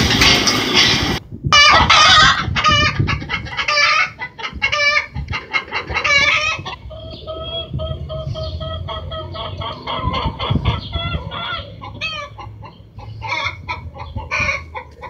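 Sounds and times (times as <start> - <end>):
loud rushing noise: 0.0 - 1.3
dog clucking calls: 1.6 - 15.0.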